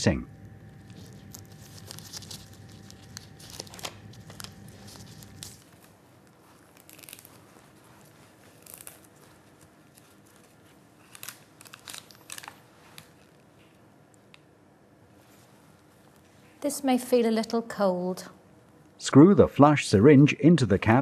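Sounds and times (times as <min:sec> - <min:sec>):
plastic packet crinkling: 0:00.7 - 0:13.5.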